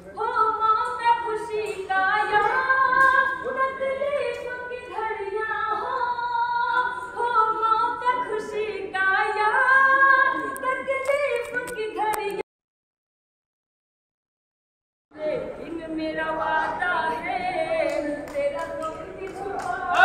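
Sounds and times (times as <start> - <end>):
woman singing poetry: 15.1 - 20.0.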